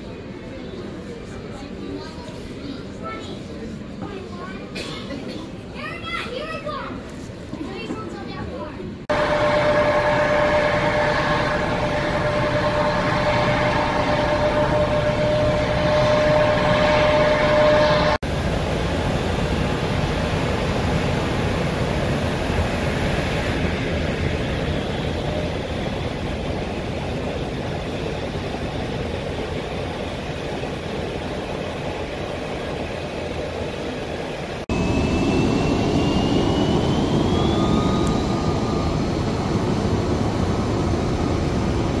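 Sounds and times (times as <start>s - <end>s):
jet engines running: 8.9s - 42.0s
high engine whine: 9.1s - 42.0s.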